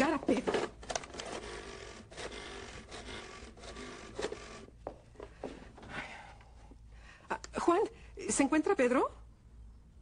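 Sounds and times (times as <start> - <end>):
telephone handling rustling: 0.3 - 1.5.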